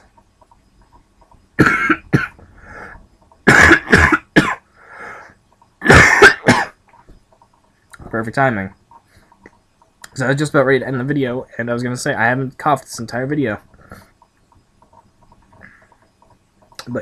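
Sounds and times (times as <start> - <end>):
man coughing hard: 1.6 - 2.4, 3.4 - 4.7, 5.8 - 6.8.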